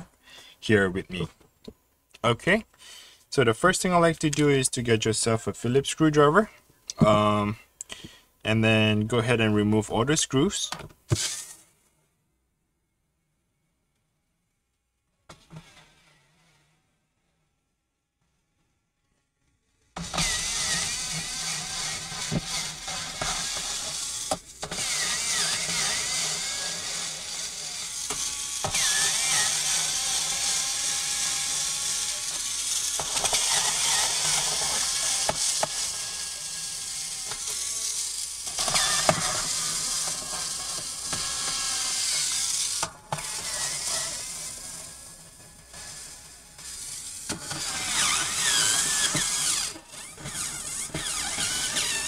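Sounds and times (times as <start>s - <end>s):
electric screwdriver whirring: 11.1s - 11.6s, 20.0s - 52.0s.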